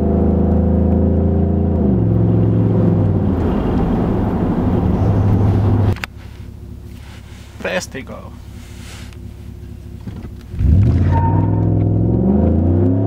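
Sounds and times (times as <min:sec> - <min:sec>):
truck engine accelerating: 0:00.0 - 0:13.0
cabin hum: 0:01.9 - 0:10.6.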